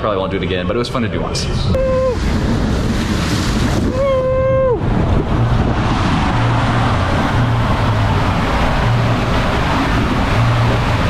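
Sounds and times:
wind on microphone: 1.4 - 11.0
water rushing: 1.6 - 11.0.

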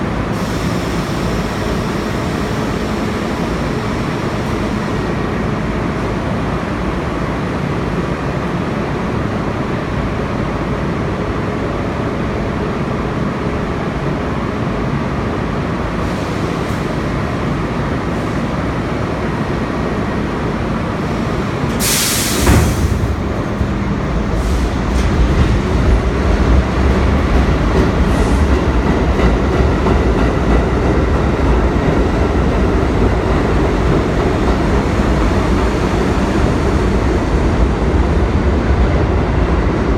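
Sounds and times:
subway train humming: 0.0 - 39.9
train starting to move rumble: 0.0 - 39.9
air hiss: 21.7 - 23.2.

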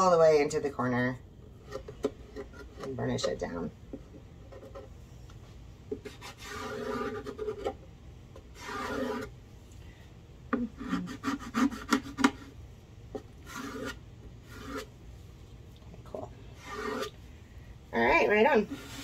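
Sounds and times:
scratchy rubbing of tape: 6.0 - 7.8, 8.5 - 9.3, 13.4 - 14.9, 16.6 - 17.2.

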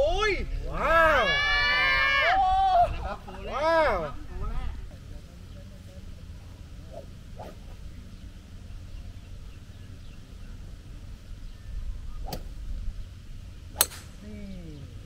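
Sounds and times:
steady low hum: 0.0 - 15.0
golf club swing whoosh: 6.8 - 7.9, 12.0 - 12.8, 13.7 - 14.1.

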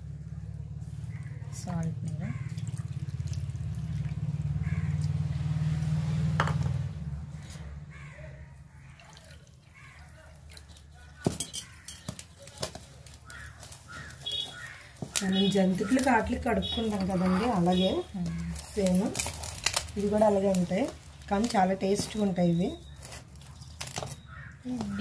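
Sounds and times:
water pouring onto flour: 2.5 - 4.3, 8.9 - 11.2
hand mixing flour: 9.0 - 24.1.

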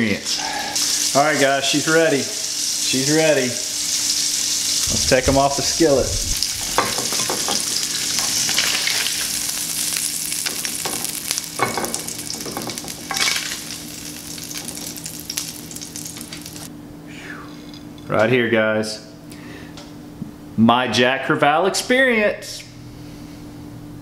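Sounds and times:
fish sizzling in oil: 0.2 - 16.7
low hum: 4.8 - 7.4.

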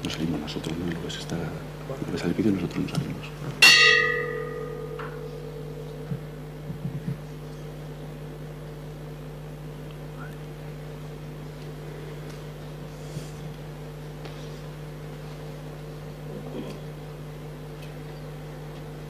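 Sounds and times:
steady hum with tones: 0.0 - 19.0
bell-like strike ringing: 3.6 - 6.3.

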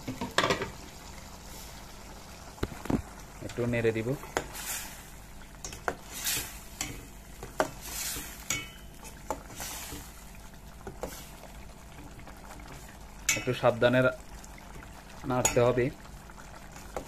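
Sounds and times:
metal spoon stirring in a pot: 5.6 - 10.2, 10.8 - 11.5, 12.6 - 13.6.

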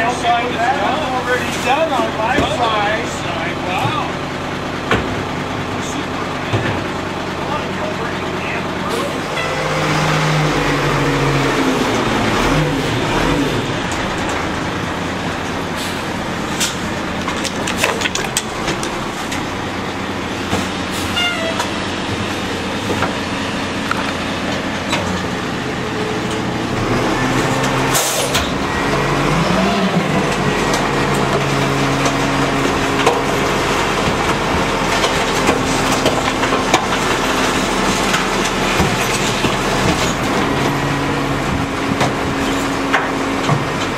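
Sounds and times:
garbage truck engine revving: 0.0 - 43.9
hydraulic packer: 0.0 - 43.9
trash clattering: 8.9 - 43.9.

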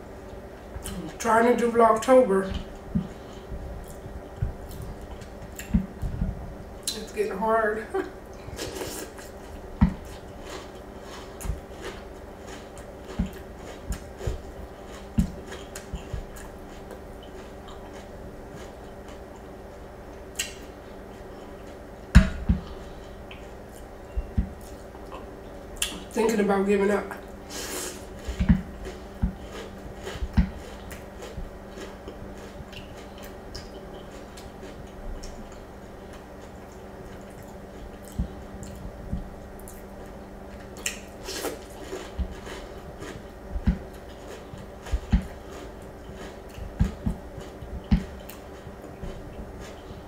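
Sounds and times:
wet chewing and slurping: 36.4 - 50.0.

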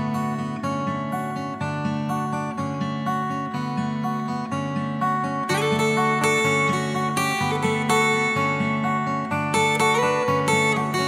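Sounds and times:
acoustic guitar strumming chords: 0.0 - 11.0.

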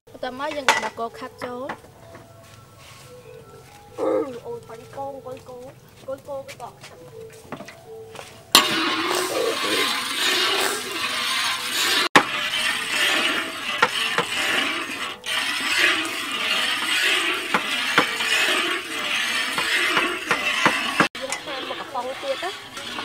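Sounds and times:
ladle scraping metal wok: 8.2 - 23.0.

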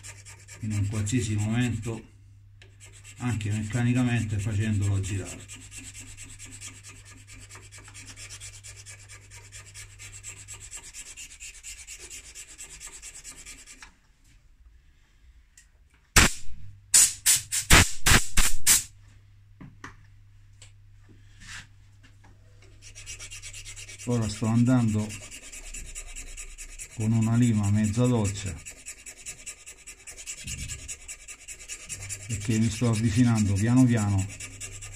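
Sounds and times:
hand file rasping: 0.0 - 1.8, 2.7 - 13.8, 22.7 - 34.9.

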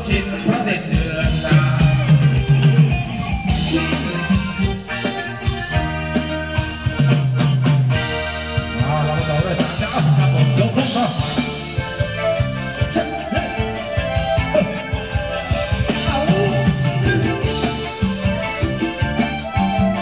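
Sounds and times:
live band playing dance music: 0.0 - 20.0.

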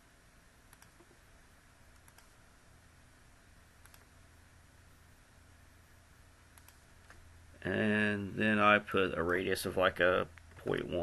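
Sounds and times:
computer mouse clicks: 0.7 - 1.2, 1.9 - 2.4, 3.8 - 4.1, 6.5 - 7.2.

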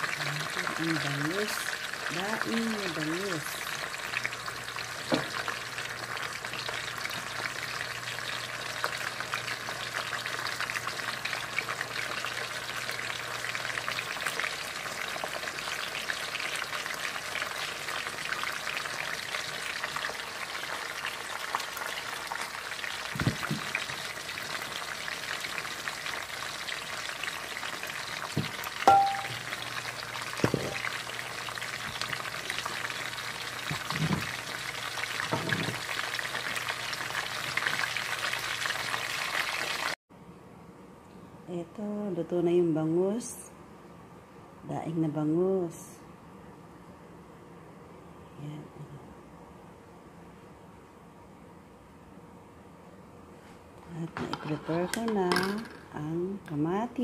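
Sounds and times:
fish frying in hot oil: 0.0 - 40.0
short ringing clink: 28.9 - 29.4.

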